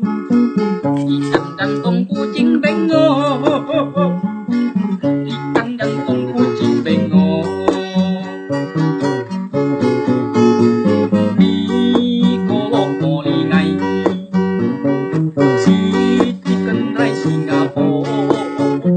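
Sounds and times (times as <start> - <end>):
acoustic guitar strumming chords: 0.0 - 18.9
man singing: 0.8 - 8.6, 10.8 - 14.3, 15.4 - 18.9.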